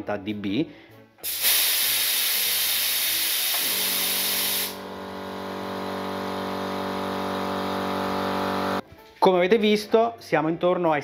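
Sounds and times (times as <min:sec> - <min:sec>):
compressed air hissing: 0:01.2 - 0:04.8
air compressor motor humming: 0:01.3 - 0:08.8.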